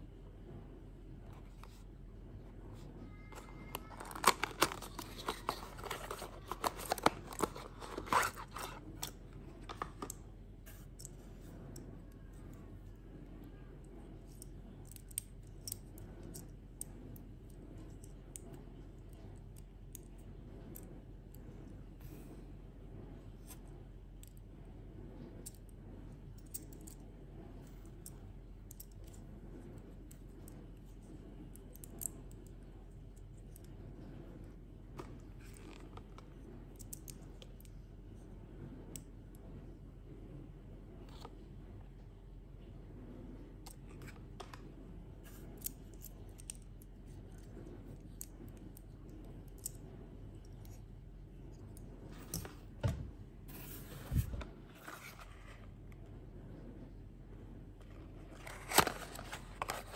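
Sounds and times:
toy parts clicking: 3.8s - 8.8s
cardboard boxes being handled: 4.1s - 8.8s.

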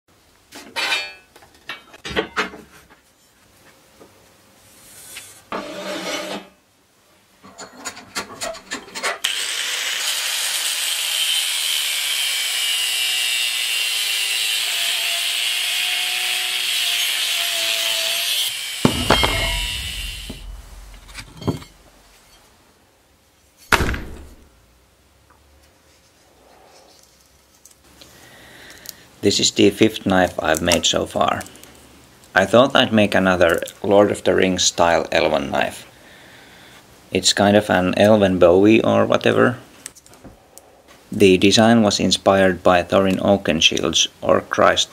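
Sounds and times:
steel bar knocks and scrapes: 5.5s - 6.6s, 18.9s - 22.4s
cut-off disc grinding steel: 9.2s - 22.0s.

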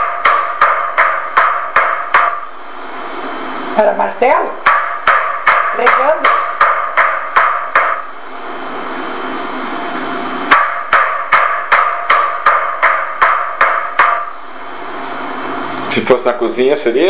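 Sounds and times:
mallet pounding meat on wood: 0.0s - 2.5s, 4.6s - 8.1s, 10.5s - 14.3s.

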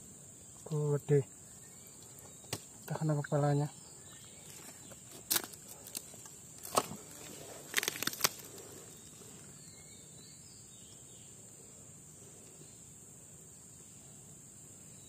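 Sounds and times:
high drone of insects: 0.0s - 15.0s.

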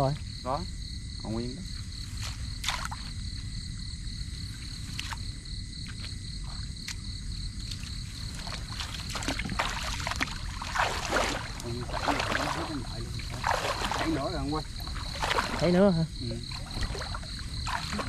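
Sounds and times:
reeds and grass swishing: 8.1s - 18.0s.

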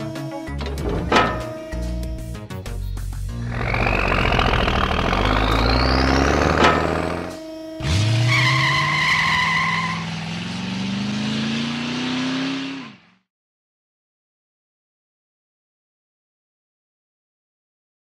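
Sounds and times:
steady two-note tone: 0.0s - 2.5s, 3.4s - 7.8s
cartoon truck engine rumbling: 0.0s - 13.3s
motor whining upward: 3.3s - 8.2s
rising whistle: 3.4s - 6.2s.

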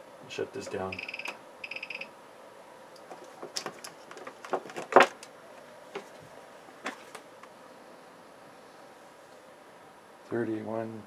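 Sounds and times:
equipment clicks and knocks: 3.0s - 5.3s.

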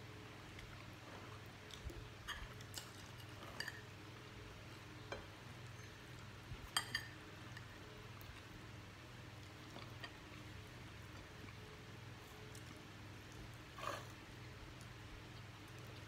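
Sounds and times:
faint low hum: 0.0s - 16.0s
metal spoon clinking on plates: 2.3s - 3.8s, 6.7s - 7.7s.

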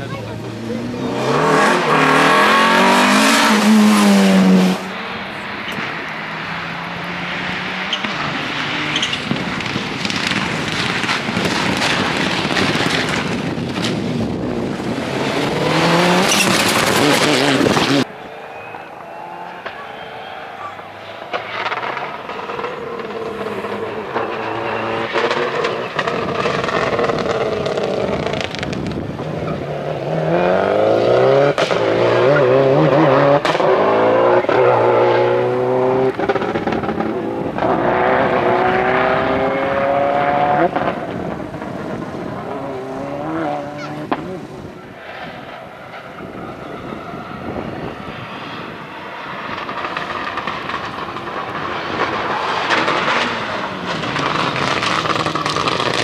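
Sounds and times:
rally car engine revving: 0.0s - 56.0s.

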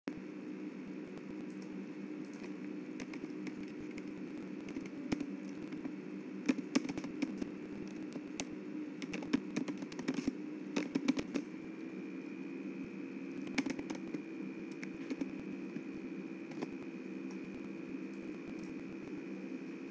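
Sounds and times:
steady background hum: 0.1s - 19.9s
keyboard keys clicking: 1.2s - 11.5s, 13.4s - 15.8s, 16.4s - 18.8s.

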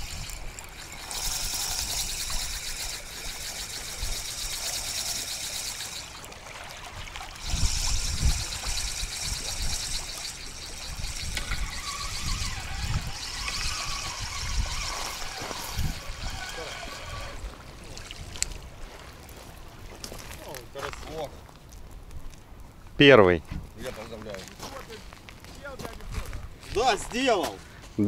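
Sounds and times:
fishing reel ticking: 0.0s - 6.3s, 7.4s - 17.6s.

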